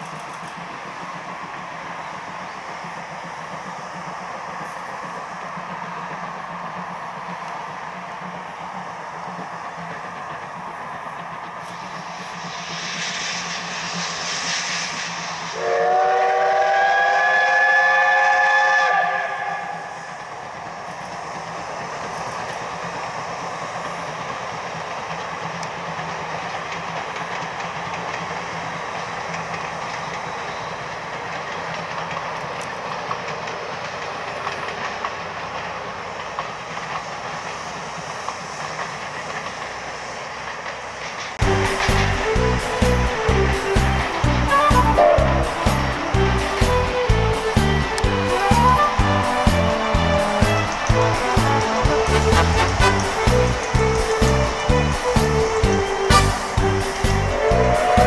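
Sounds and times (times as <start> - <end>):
train running along track: 0.0 - 58.0
steam locomotive whistle: 11.9 - 20.5, 41.4 - 58.0.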